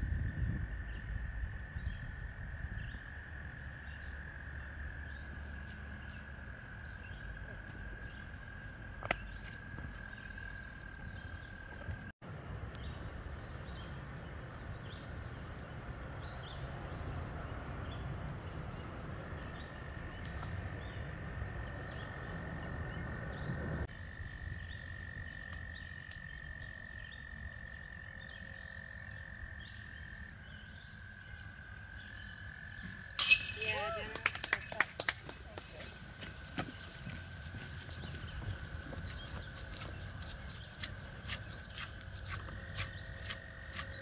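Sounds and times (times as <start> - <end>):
frogs trilling: 0.6 - 12.1, 23.9 - 35.0, 35.6 - 44.0.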